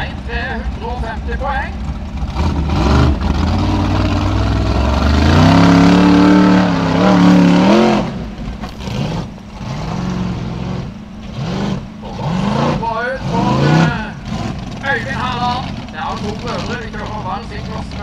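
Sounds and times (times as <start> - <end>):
buggy engine revving: 0.0 - 18.0.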